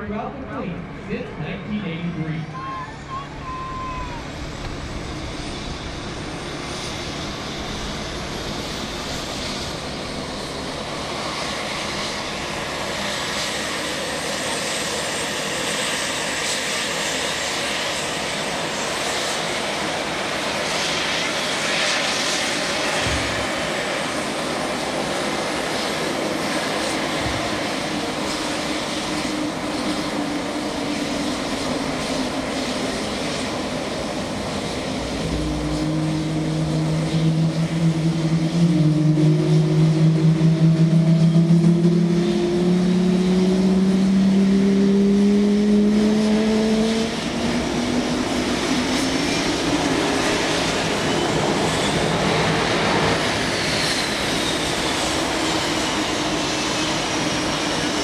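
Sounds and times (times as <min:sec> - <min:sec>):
jet engine roar: 0:00.0 - 0:58.0
low hum rising in pitch: 0:34.2 - 0:49.2.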